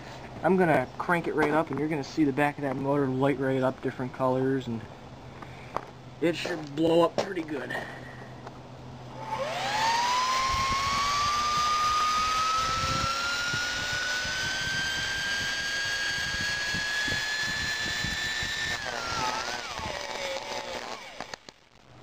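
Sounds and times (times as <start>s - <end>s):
electric motor whining: 9.0s - 21.6s
brushes sparking crackle: 18.0s - 22.0s.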